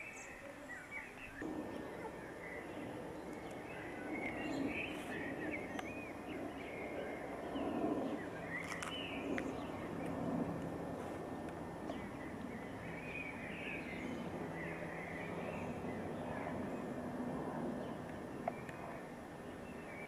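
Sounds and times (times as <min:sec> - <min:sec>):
birds chirping: 0:00.0 - 0:20.0
low hum: 0:01.1 - 0:20.0.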